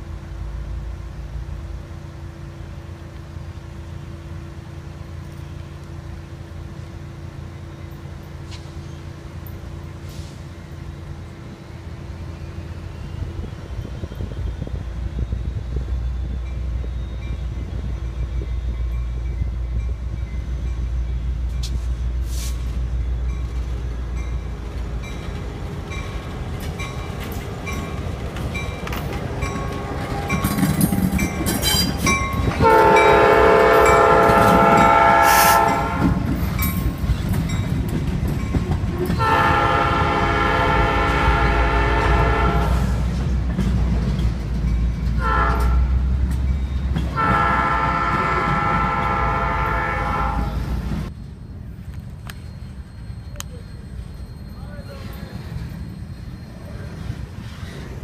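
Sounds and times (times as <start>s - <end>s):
train cars rolling: 0.0s - 58.0s
locomotive air horn blast: 32.6s - 36.3s, 39.2s - 43.0s, 45.2s - 46.0s, 47.1s - 50.7s.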